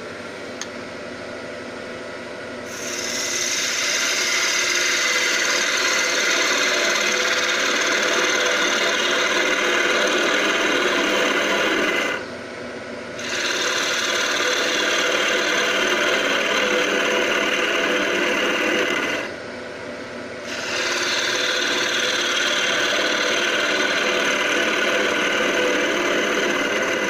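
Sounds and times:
gouge shearing wood on a lathe: 2.7 - 12.2, 13.2 - 19.4, 20.4 - 27.0
lathe running: 2.7 - 12.3, 13.2 - 19.4, 20.4 - 27.0.

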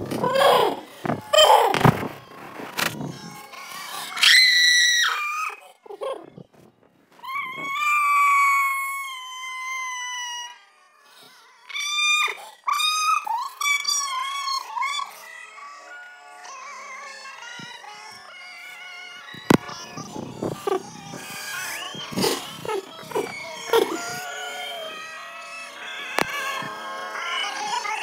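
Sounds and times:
pitched-up voice squealing: 19.4 - 25.1.

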